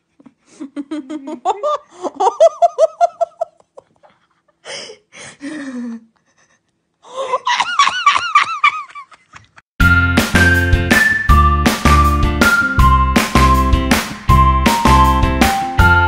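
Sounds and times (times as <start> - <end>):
person laughing with gasps: 0.1 - 9.6.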